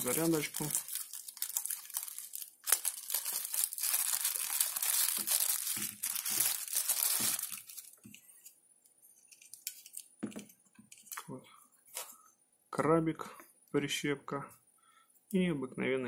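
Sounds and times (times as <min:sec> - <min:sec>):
plastic wrapper crinkling: 0:00.0 - 0:08.2.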